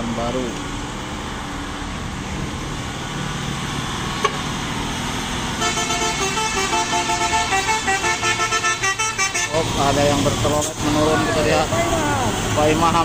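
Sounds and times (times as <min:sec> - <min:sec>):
truck diesel engine under load: 0:00.0 - 0:13.0
musical horn playing a tune: 0:05.6 - 0:09.6.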